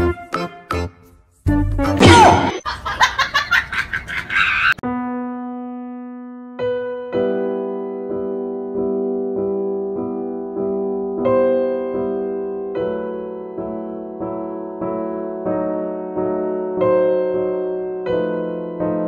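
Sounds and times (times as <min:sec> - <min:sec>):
slow piano music: 0:04.8 - 0:19.0.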